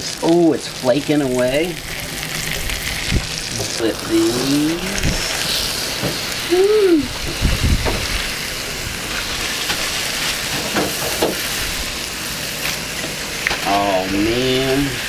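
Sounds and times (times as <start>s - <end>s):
fish sizzling in a pan: 0.0s - 15.0s.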